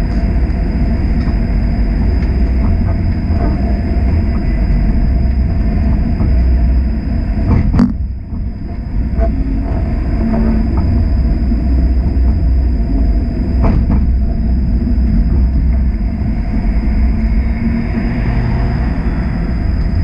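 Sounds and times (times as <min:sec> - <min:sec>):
high-pitched whine: 0:00.0 - 0:20.0
streetcar wheels rumbling: 0:00.0 - 0:20.0.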